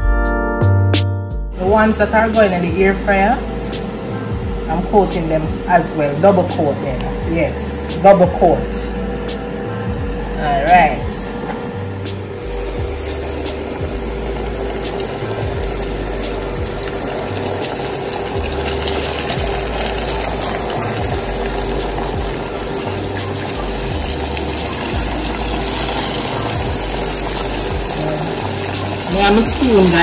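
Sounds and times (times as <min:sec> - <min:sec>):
chicken deep-frying in oil: 0:12.4 - 0:30.0.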